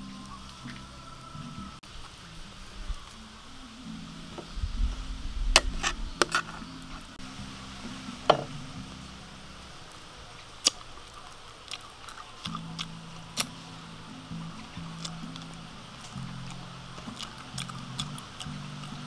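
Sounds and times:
cutlery scraping a metal plate: 5.6s - 6.7s.

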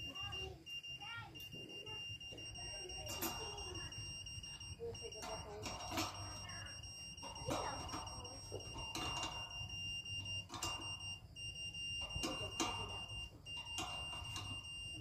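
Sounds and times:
high-pitched beep tone: 0.0s - 15.0s
metal knocks and clanks: 5.0s - 11.3s.

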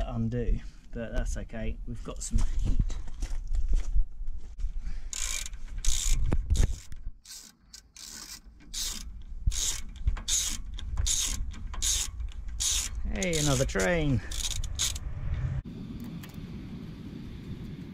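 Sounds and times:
ratchet wrench clicking: 5.1s - 15.1s.

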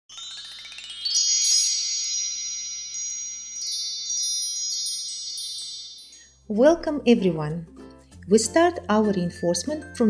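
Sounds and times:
sparkling chimes: 0.1s - 6.6s.

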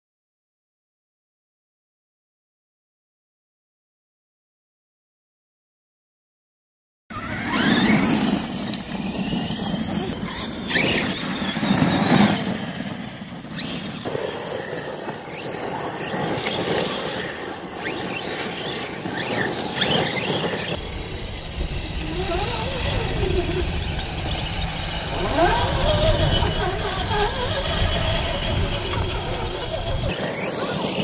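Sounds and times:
tyres spinning through gravel: 7.1s - 20.8s, 22.4s - 31.0s
electric toy truck motors whining: 7.1s - 31.0s.

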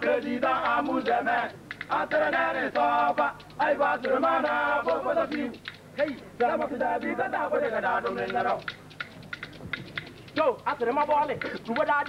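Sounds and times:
group of men chanting: 0.0s - 8.6s.

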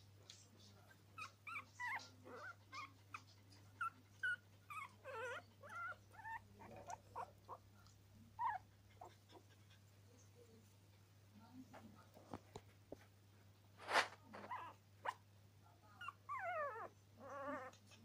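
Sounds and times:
puppies whimpering and squeaking: 1.2s - 7.6s, 8.4s - 9.6s, 14.4s - 15.2s, 16.0s - 18.0s.

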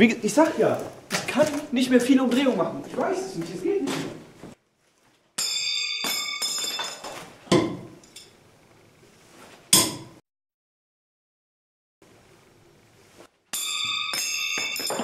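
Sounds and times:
knives striking wooden target: 5.4s - 7.9s
metal knives clinking together: 13.6s - 15.0s.

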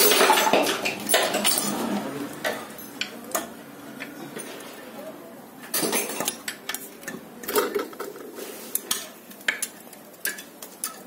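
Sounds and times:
tools clanking on engine block: 0.0s - 4.8s, 5.7s - 8.2s.

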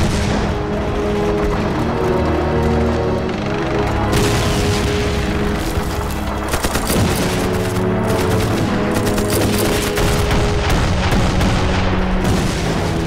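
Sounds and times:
shell explosions: 0.0s - 1.6s, 4.1s - 13.0s
background music with held notes: 0.0s - 13.0s
machine-gun fire: 4.1s - 13.0s
rifle fire: 6.4s - 13.0s.

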